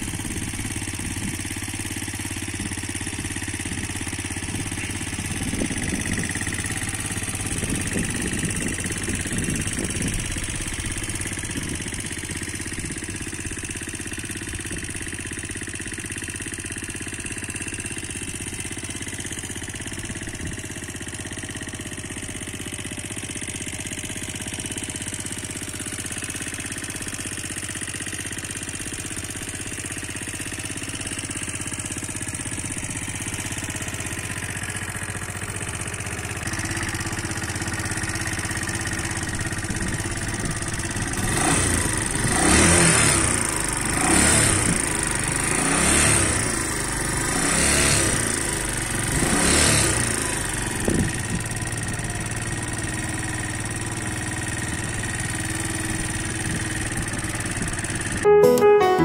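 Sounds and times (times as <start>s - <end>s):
motorcycle engine idling and revving: 0.0s - 58.3s.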